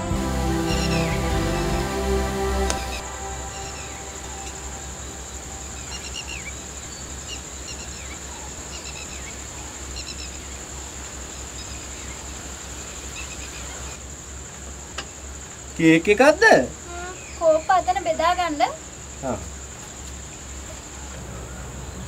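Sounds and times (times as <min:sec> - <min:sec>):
low steady hum: 0:00.0 - 0:07.9
insects trilling: 0:00.0 - 0:22.0.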